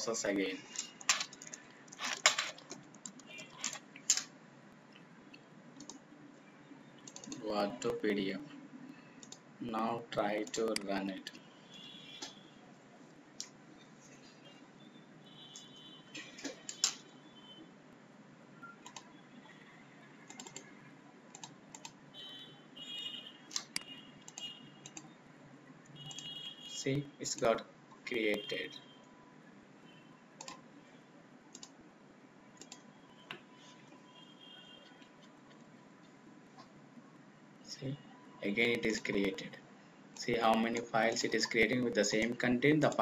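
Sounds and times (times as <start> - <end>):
keyboard keystrokes: 20.3 - 20.6, 31.5 - 31.7.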